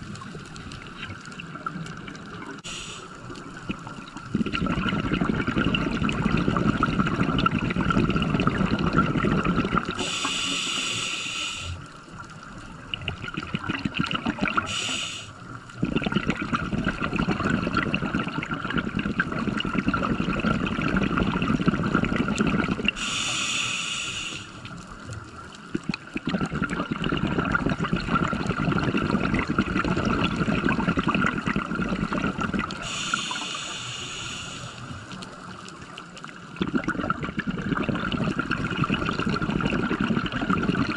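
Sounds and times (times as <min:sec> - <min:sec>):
bubbling exhalations underwater: 0:00.0 - 0:10.5, 0:12.9 - 0:14.9, 0:15.8 - 0:23.3, 0:25.6 - 0:33.7, 0:36.5 - 0:40.9
regulator hissing inhalations: 0:02.6 - 0:03.2, 0:10.0 - 0:11.9, 0:14.6 - 0:15.4, 0:23.0 - 0:24.7, 0:32.8 - 0:35.0.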